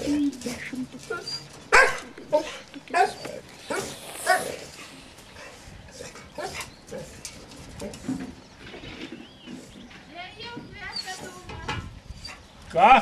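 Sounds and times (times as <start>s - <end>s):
dog barking: 1.7s - 4.5s.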